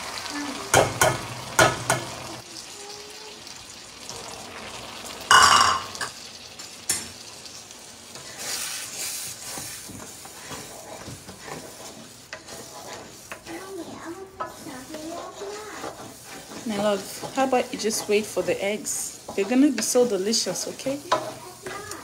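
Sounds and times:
eggs sizzling in a wok: 0.0s - 22.0s
wooden spatula scraping: 8.1s - 22.0s.

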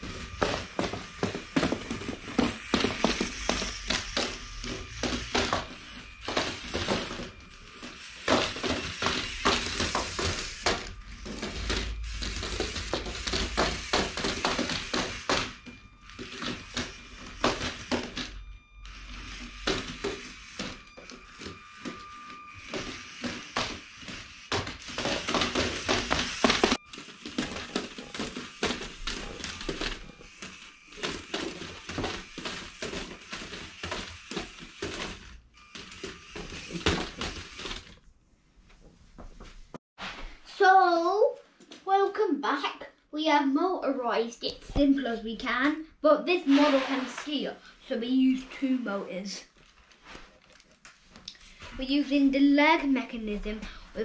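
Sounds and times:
faint motor whine: 0.0s - 38.0s.

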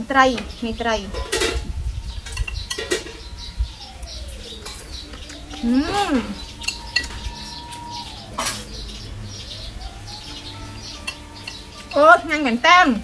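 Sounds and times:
downward sliding whistle tones: 2.0s - 12.1s.

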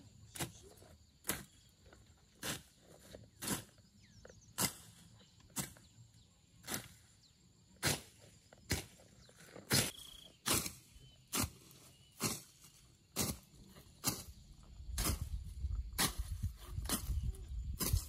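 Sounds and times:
crunching strikes in undergrowth: 7.8s - 18.0s.

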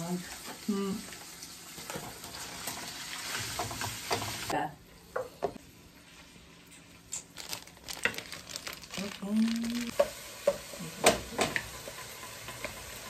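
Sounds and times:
meat sizzling in a wok: 0.0s - 4.6s, 9.2s - 13.0s
wooden spoon stirring: 7.4s - 10.0s.

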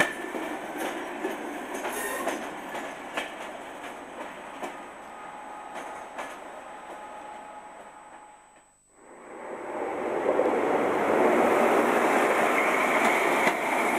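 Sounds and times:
train wheels clicking over rail joints: 0.0s - 4.8s
train rumble: 0.0s - 13.9s.

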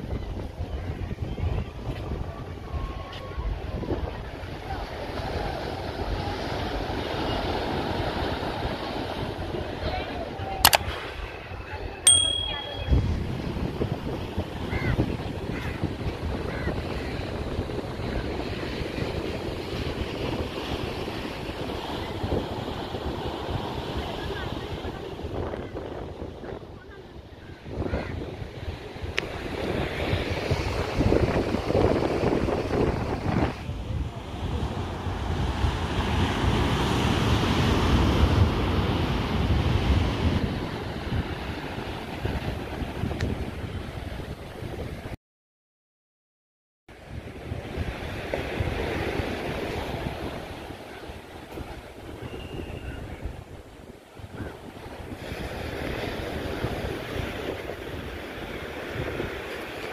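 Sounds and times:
wind buffeting microphone: 0.0s - 12.0s, 12.8s - 45.2s, 46.9s - 59.9s
surf breaking on beach: 27.7s - 45.1s, 46.9s - 59.9s.

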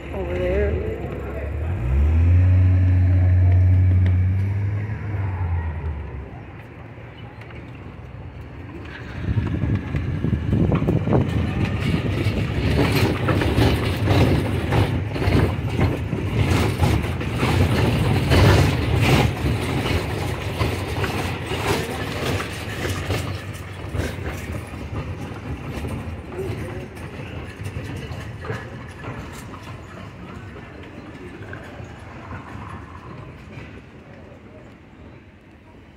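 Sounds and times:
heavy engine running: 0.0s - 34.3s
street traffic: 0.0s - 35.9s
knocks and rattles: 8.8s - 33.9s.

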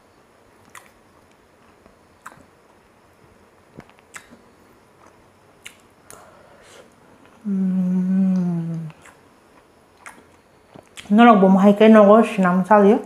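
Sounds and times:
man humming: 7.4s - 9.0s.

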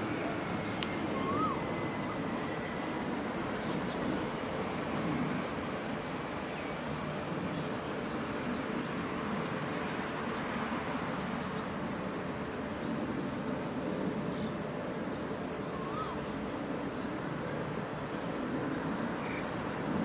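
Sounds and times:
faint bird chirp: 14.2s - 19.5s.

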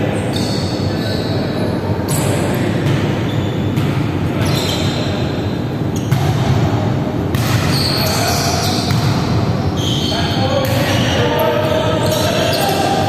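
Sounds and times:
volleyball bouncing and struck: 2.7s - 4.2s, 6.0s - 9.6s.

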